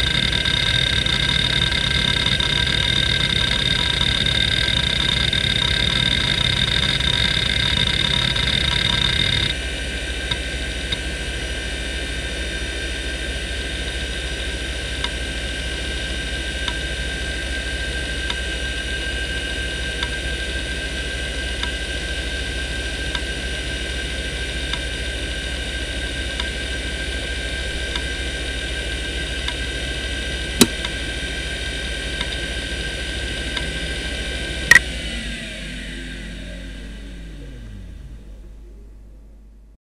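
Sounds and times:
faint regular ticks: 0.0 - 9.5
hard drive spinning whine: 0.0 - 39.8.

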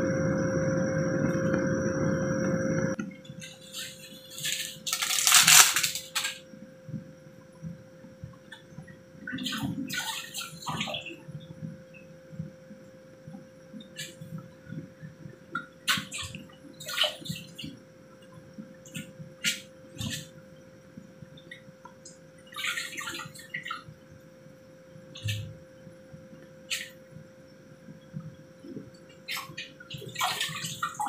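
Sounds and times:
broth boiling and bubbling: 0.0 - 31.0
faint steady hum: 0.0 - 31.0
sharp pops and crackles: 4.4 - 6.4.

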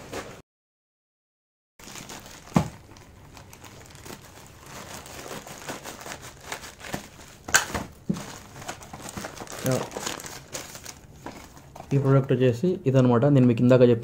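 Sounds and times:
plastic mailer bag crinkling: 1.8 - 12.0.

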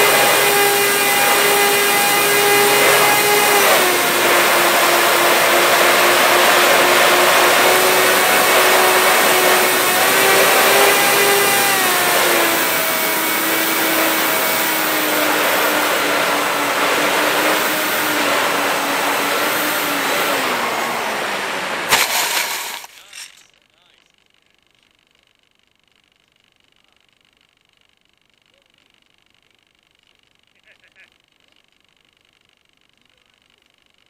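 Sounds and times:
model plane motors whining: 0.0 - 23.4.

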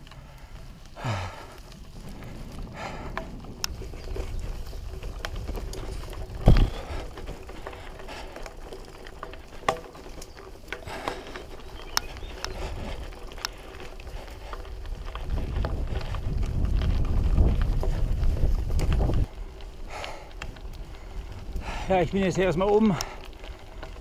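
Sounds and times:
bike tyres rumbling on track: 0.0 - 24.0
clicks and rattles: 3.1 - 16.2.

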